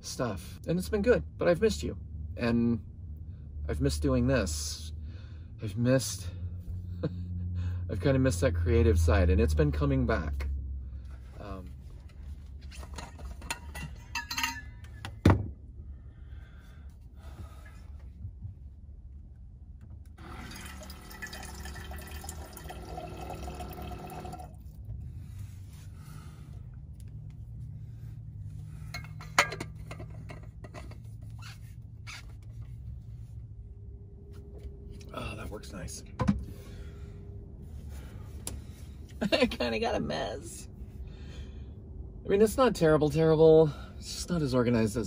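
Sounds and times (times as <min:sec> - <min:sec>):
water pouring into metal bottle: 0:20.2 - 0:24.6
water pump dispensing water: 0:20.2 - 0:24.6.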